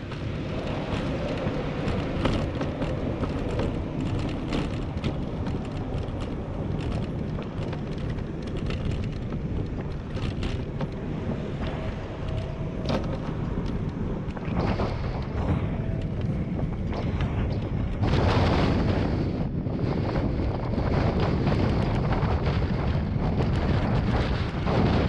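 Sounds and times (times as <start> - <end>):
road traffic passing: 0.0 - 18.1
bicycle rolling over bricks: 0.0 - 25.0
wind on microphone: 0.0 - 25.0.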